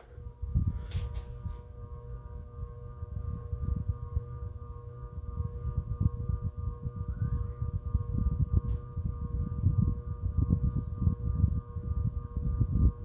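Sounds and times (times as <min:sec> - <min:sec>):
ceiling fan fluttering rumble: 0:00.0 - 0:13.0
steady high whine: 0:00.0 - 0:13.0.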